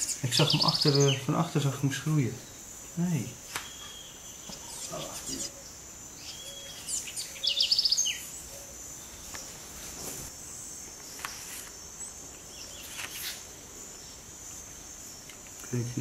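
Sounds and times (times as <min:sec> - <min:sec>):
rapid chirping trill: 0:00.0 - 0:09.3
insects droning: 0:00.0 - 0:16.0.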